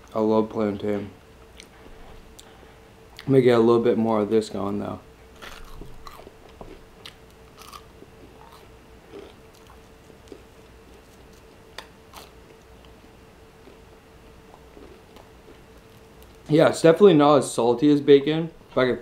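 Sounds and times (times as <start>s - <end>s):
chewing crispy food: 5.4s - 16.5s.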